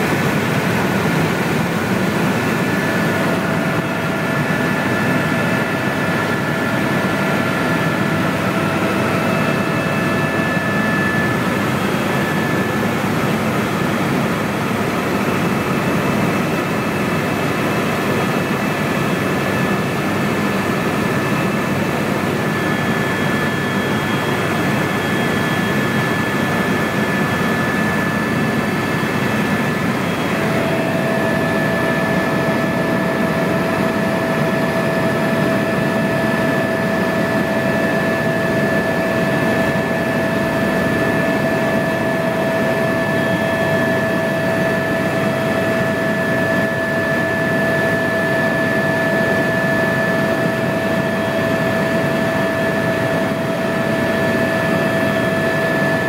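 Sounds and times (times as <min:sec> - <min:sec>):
helicopter turbine and rotor noise: 0:00.0 - 0:56.0
lower steady whine: 0:00.0 - 0:56.0
high whine: 0:20.8 - 0:46.7.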